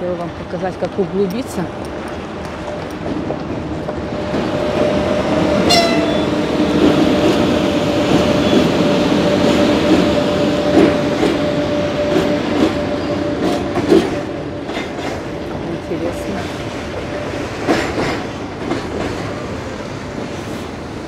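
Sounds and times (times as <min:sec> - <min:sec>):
train rumbling over bridge: 0:00.0 - 0:21.0
brief high squeal: 0:05.7 - 0:06.4.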